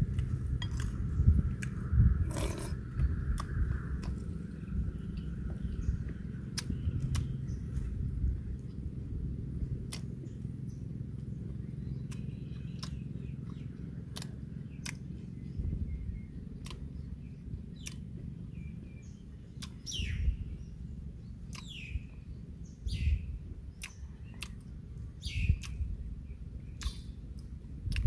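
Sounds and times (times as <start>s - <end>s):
man chewing: 0.0s - 8.8s, 9.7s - 15.4s, 16.2s - 18.7s, 19.3s - 20.0s, 21.4s - 21.8s, 23.6s - 26.1s, 26.8s - 28.0s
lip-smacks: 3.1s - 4.7s, 6.1s - 7.8s, 9.6s - 15.5s, 16.2s - 20.2s, 21.4s - 22.2s, 23.6s - 28.0s.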